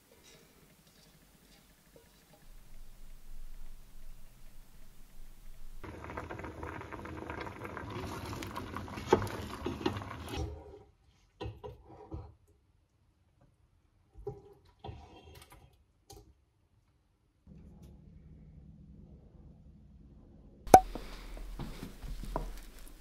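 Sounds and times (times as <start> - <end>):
rice boiling and bubbling: 0.0 - 13.1, 20.7 - 23.0.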